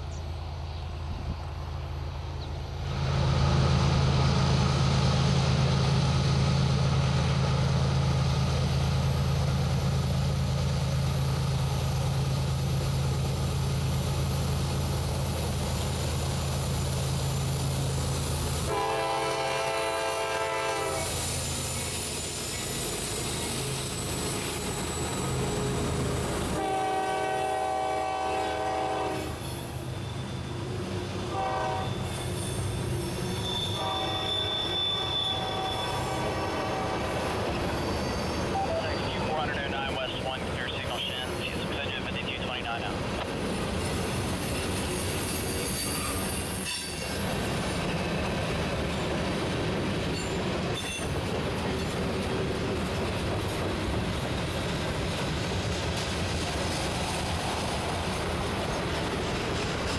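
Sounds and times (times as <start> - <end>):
diesel locomotive engines droning: 0.0 - 59.9
locomotive horn blasts: 18.7 - 21.1, 26.6 - 29.4, 31.3 - 32.1, 33.6 - 37.1
train wheel squeal: 20.8 - 26.6, 29.1 - 39.3, 43.8 - 49.1, 50.0 - 52.1.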